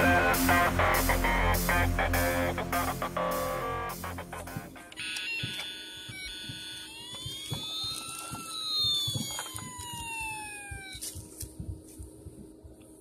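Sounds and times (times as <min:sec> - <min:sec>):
toy siren wailing: 0:04.9 - 0:11.3.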